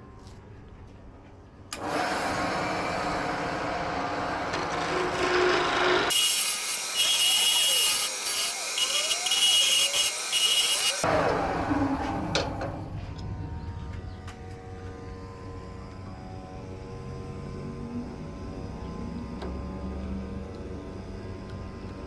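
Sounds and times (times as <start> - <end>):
wood lathe running: 1.8 - 11.5.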